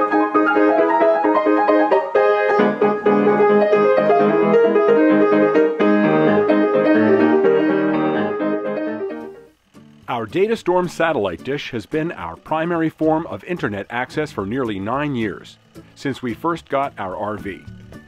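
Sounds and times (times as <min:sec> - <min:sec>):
piano music: 0:00.0 - 0:09.6.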